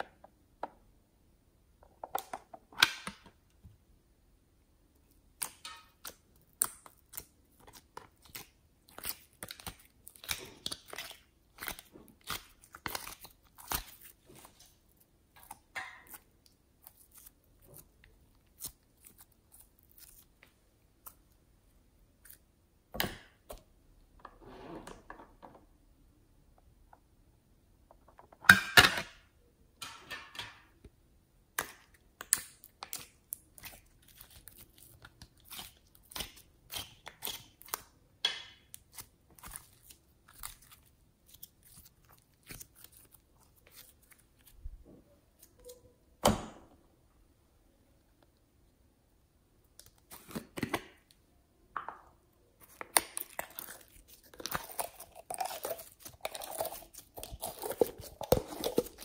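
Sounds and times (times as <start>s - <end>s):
slime crackling and popping: 52.7s - 59.0s.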